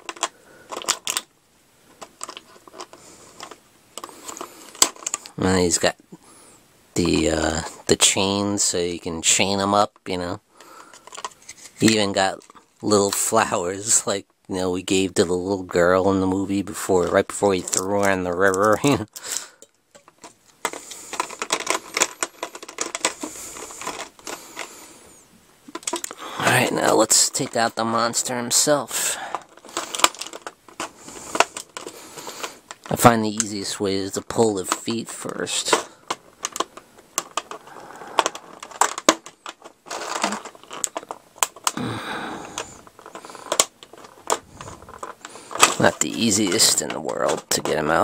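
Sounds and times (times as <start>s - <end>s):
plastic tray crackling and clicking: 0.0s - 1.3s, 1.9s - 5.4s, 9.9s - 13.3s, 15.5s - 24.8s, 25.7s - 33.6s, 34.2s - 48.0s
plastic blister tray clicking: 42.4s - 48.0s.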